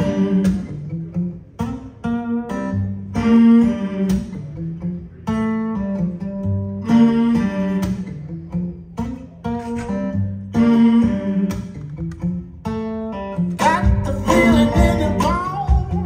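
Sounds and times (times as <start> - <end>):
acoustic guitar music over loudspeakers: 0.0 - 16.0
low bass line: 13.8 - 16.0.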